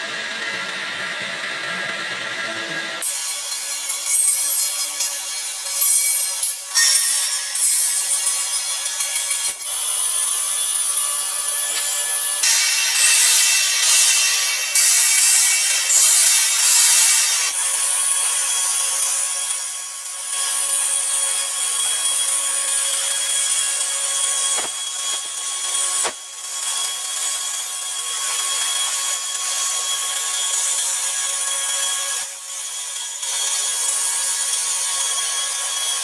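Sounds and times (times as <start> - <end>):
welding arc crackling: 23.4 - 26.3.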